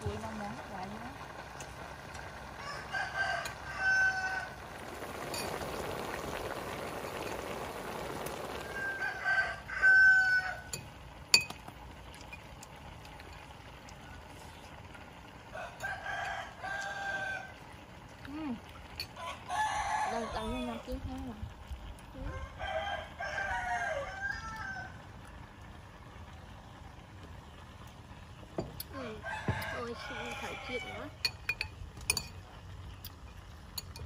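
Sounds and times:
rooster crowing: 2.5s - 4.6s, 8.6s - 10.8s, 15.5s - 17.6s, 19.2s - 20.8s, 22.2s - 25.1s, 29.0s - 31.2s.

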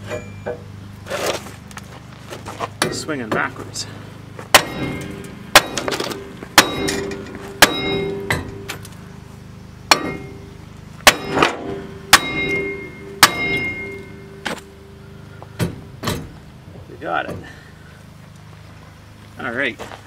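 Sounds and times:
hammer striking steel: 4.5s - 8.9s, 9.9s - 14.9s.

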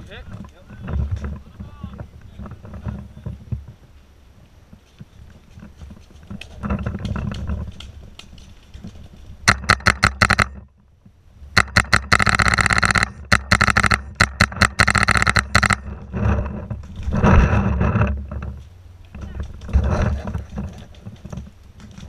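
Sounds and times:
paintball marker firing: 9.5s - 10.6s, 11.6s - 15.8s.

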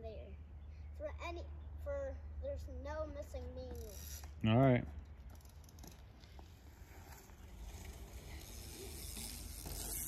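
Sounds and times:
bike rolling over packed dirt: 5.2s - 10.0s.

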